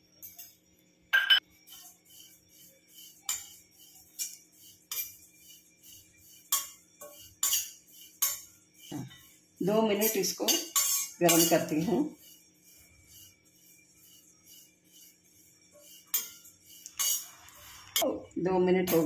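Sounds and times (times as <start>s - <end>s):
metal spatula clinking on pan: 3.0s - 5.2s, 5.8s - 8.5s, 10.0s - 12.3s, 15.8s - 18.1s.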